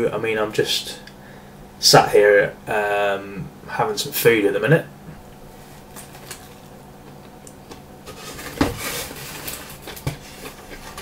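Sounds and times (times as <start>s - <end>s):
food handling noises: 5.5s - 11.0s.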